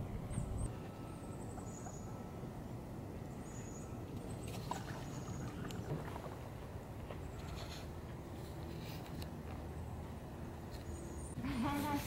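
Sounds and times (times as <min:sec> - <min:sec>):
small birds calling: 0:03.2 - 0:06.0.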